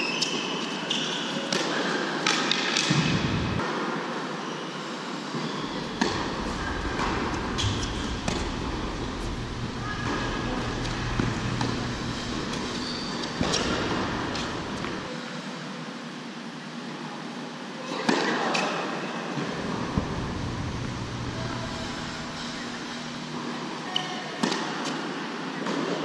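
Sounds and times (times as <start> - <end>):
steady low hum: 2.9 - 3.6, 5.3 - 16.6, 19.4 - 23.9
tennis ball hit by racquets: 5.9 - 9.4.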